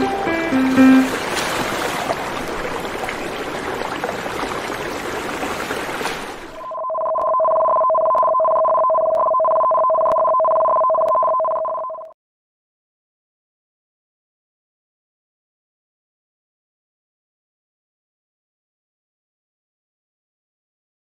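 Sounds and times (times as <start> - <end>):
two-tone warning alarm: 6.6 - 12.1.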